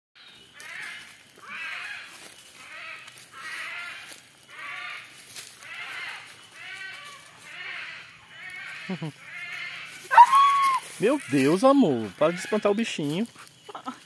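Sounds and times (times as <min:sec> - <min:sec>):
monkey calling: 0:05.8 - 0:14.0.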